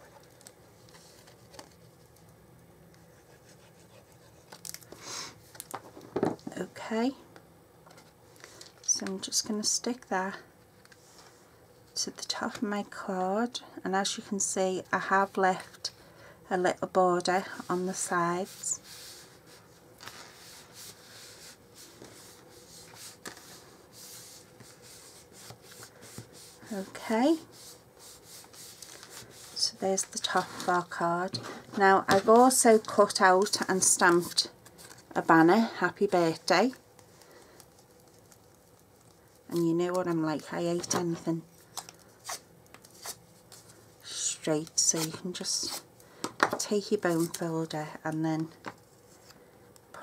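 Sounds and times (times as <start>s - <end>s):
paper sliding against paper: 17.6s - 30.8s.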